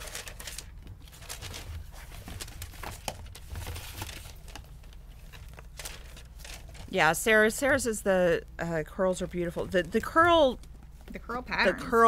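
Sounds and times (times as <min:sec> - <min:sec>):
packaging crinkling: 0:00.0 - 0:06.9
steady low hum: 0:04.8 - 0:12.0.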